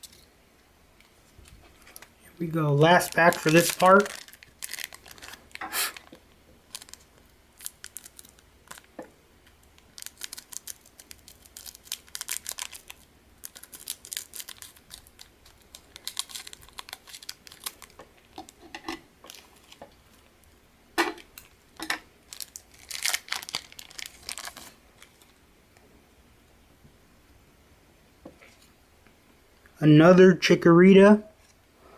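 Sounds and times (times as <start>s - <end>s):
foil pack crinkling: 2.8s - 9.0s, 9.6s - 20.2s, 21.3s - 25.4s.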